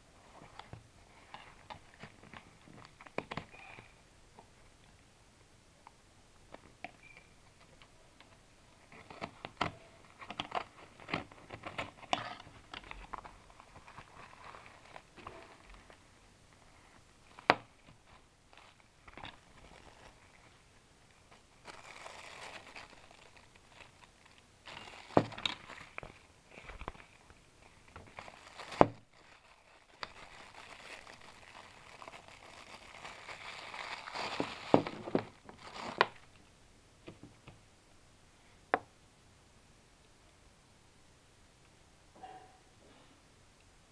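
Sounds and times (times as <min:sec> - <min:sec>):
plastic wrapping crinkling: 0:00.2 - 0:04.0, 0:08.8 - 0:36.4.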